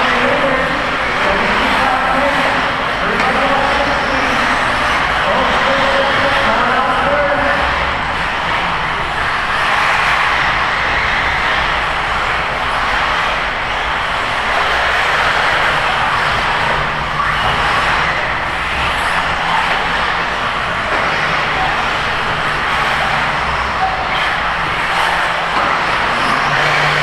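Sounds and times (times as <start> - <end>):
model car motors racing: 0.0 - 27.0.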